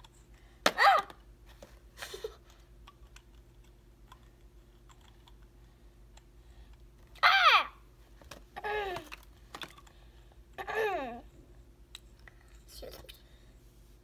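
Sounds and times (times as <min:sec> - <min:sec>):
child crying: 0:07.2 - 0:07.8, 0:08.6 - 0:09.1, 0:10.6 - 0:11.3.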